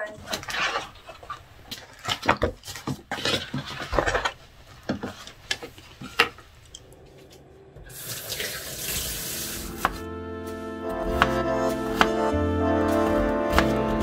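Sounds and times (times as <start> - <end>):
soft music: 7.2 - 14.0
water running from tap: 7.8 - 10.0.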